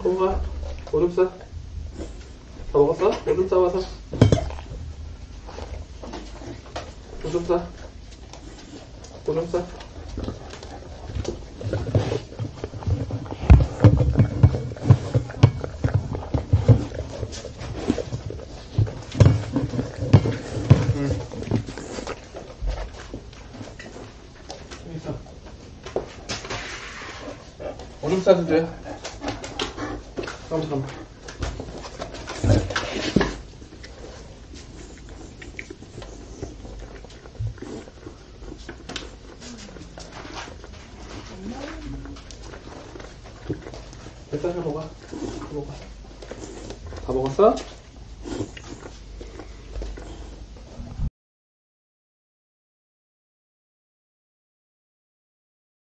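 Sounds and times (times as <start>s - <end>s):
dog chewing food: 0.1s - 50.8s.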